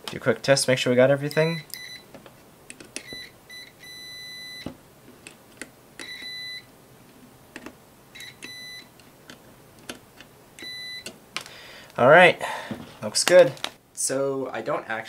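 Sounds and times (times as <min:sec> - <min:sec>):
multimeter beeping: 0:01.3 - 0:02.1, 0:03.0 - 0:04.7, 0:06.0 - 0:06.7, 0:08.1 - 0:08.9, 0:10.6 - 0:11.1.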